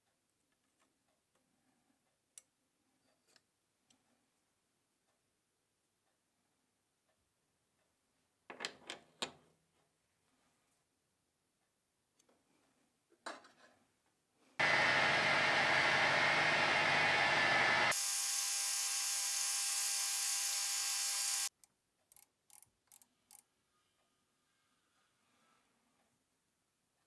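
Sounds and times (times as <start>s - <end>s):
metal lathe cutting: 14.6s - 21.5s.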